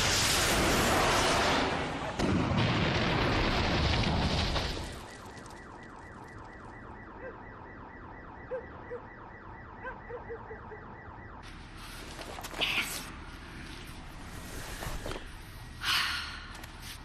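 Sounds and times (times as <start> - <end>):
explosion blast: 0.0 - 5.3
car alarm: 4.8 - 11.4.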